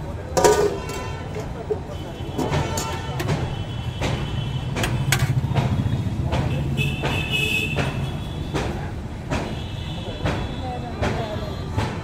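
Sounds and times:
road traffic rumble: 0.0s - 12.0s
ladle clinking against pot: 0.3s - 1.8s.

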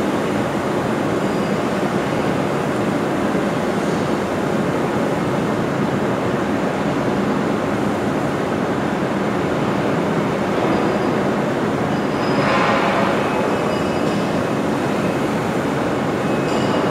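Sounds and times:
production-line machinery noise: 0.0s - 16.9s.

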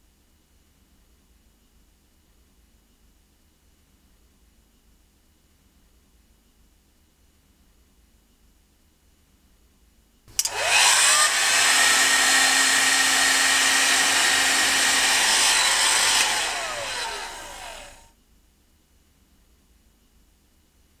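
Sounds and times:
heat gun switch click: 10.3s - 17.8s
heat gun fan whine and rush: 10.3s - 18.1s.

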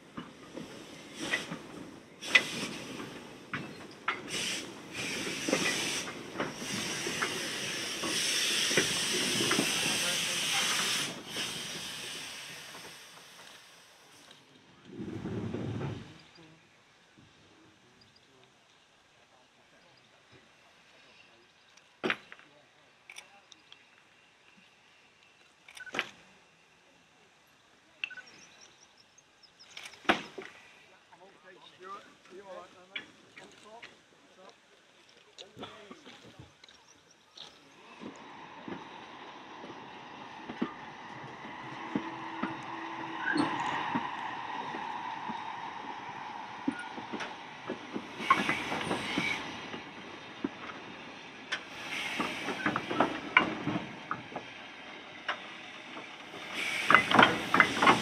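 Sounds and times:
steam hiss: 0.0s - 14.4s, 37.7s - 58.0s
steam locomotive exhaust beats: 0.0s - 16.5s, 37.7s - 58.0s.

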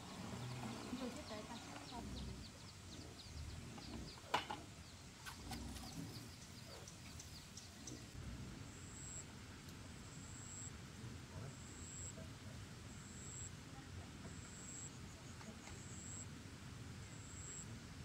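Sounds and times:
small birds chirping: 0.0s - 8.2s.

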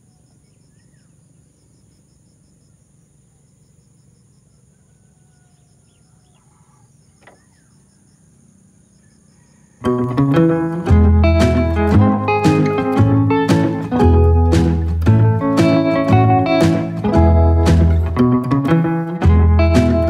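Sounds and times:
insects droning and chirping: 0.0s - 10.8s
faint bird calls: 4.6s - 10.0s.

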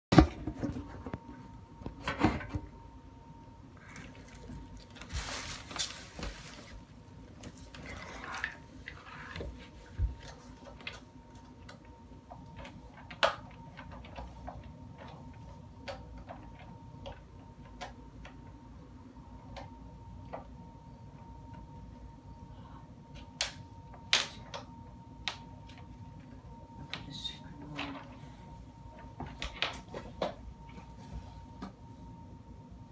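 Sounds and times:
rustling: 3.9s - 6.9s.

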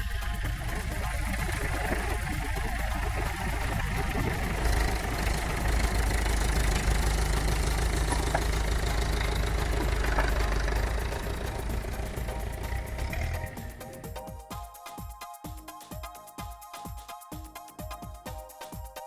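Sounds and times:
tractor engine running: 0.0s - 14.5s.

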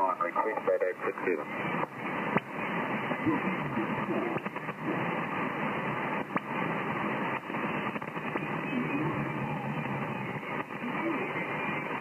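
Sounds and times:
radio crackles: 0.0s - 12.0s
radio receiver static hiss: 0.0s - 12.0s.

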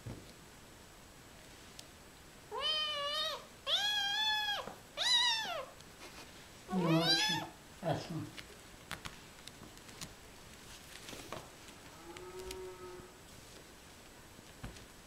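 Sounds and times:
kitten meowing: 2.5s - 5.8s, 6.7s - 7.5s.

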